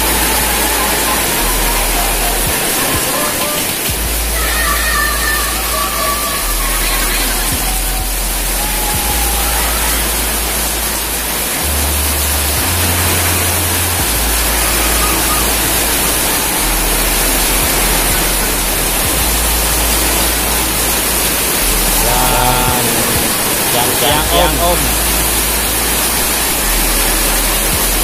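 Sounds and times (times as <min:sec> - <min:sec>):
rain on wet concrete: 0:00.0 - 0:28.0
person speaking: 0:11.6 - 0:25.6.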